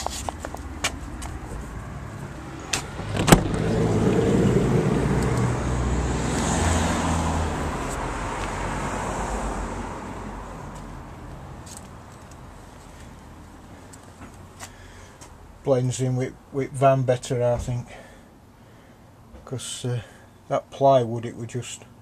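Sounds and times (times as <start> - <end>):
car passing by: 1.8 - 11.1.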